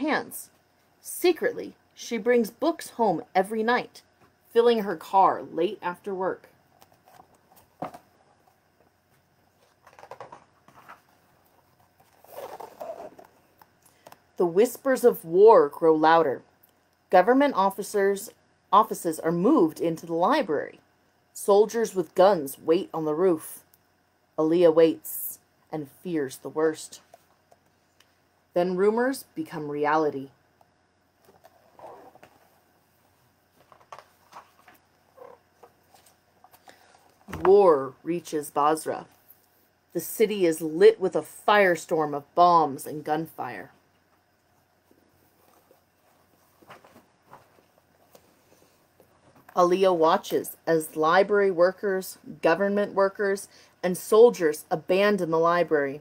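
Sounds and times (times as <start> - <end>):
book pages rustling: 6.8 - 13.6, 31.2 - 37.4, 44.6 - 49.5
paper pages turning: 9.6 - 13.4, 33.6 - 36.2.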